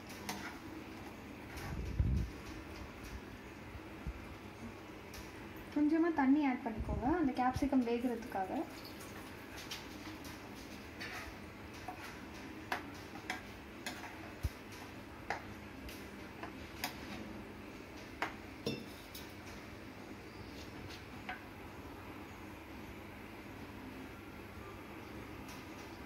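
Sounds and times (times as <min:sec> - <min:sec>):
spoon scraping a pan: 0:00.1 - 0:01.7, 0:11.0 - 0:15.5.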